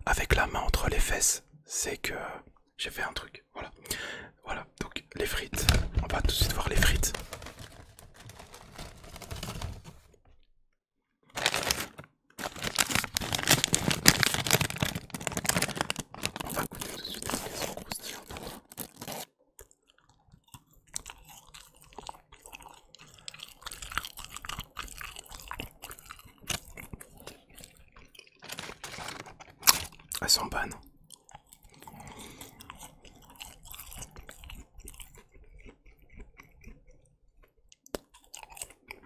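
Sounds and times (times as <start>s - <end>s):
paper carton rustling: 5.6s - 10.2s, 11.3s - 19.2s, 28.4s - 29.5s
chewing fries: 11.3s - 39.0s.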